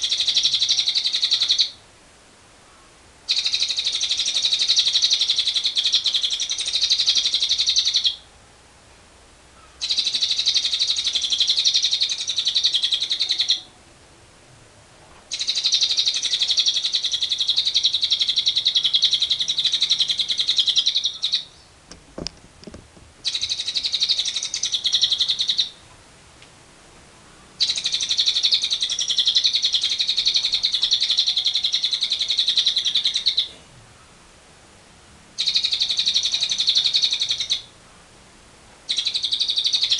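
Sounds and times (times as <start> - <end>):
lovebird chattering trills: 0.0 - 1.8, 3.3 - 8.2, 9.6 - 13.7, 15.3 - 21.7, 23.2 - 25.8, 27.6 - 33.6, 35.4 - 37.7, 38.9 - 39.9.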